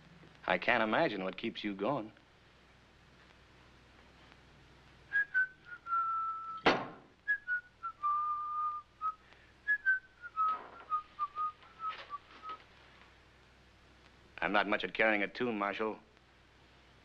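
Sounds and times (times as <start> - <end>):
person whistling a melody: 5.1 - 6.6, 7.3 - 12.6
sharp knock: 6.6 - 7.1.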